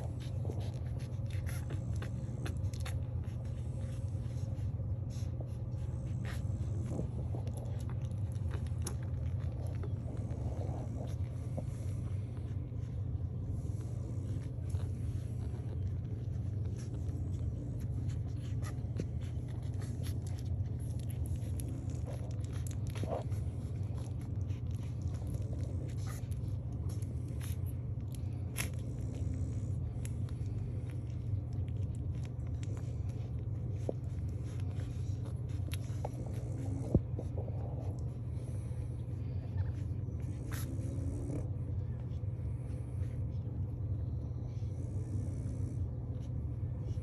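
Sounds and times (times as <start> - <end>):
low hum: 0.0 - 47.0
puppies suckling: 0.0 - 47.0.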